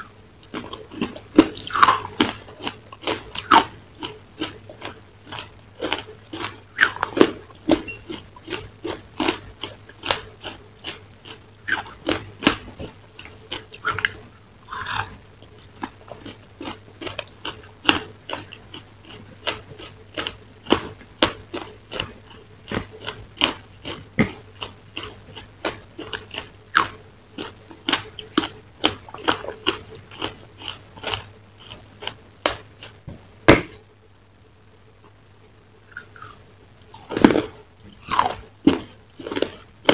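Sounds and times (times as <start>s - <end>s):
chewing crunchy food: 0.0s - 33.9s, 35.8s - 39.9s.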